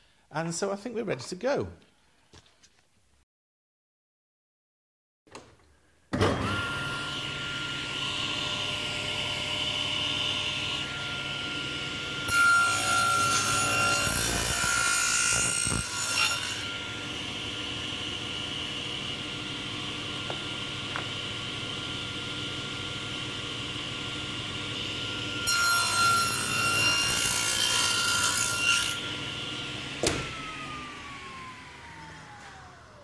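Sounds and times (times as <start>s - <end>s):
table saw running: 6.2s - 33.0s
saw blade cutting wood: 12.2s - 17.3s, 25.0s - 29.2s.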